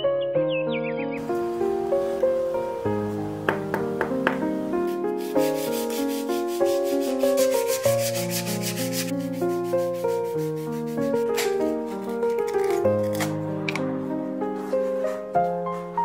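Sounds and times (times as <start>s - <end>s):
soft piano music: 0.0s - 16.0s
sanding sponge rasping on clay: 4.8s - 11.3s.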